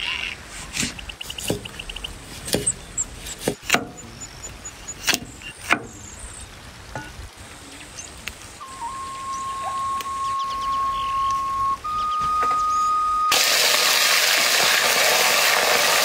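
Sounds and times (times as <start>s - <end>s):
cleaver chopping on wooden block: 1.4s - 1.8s, 2.4s - 4.2s.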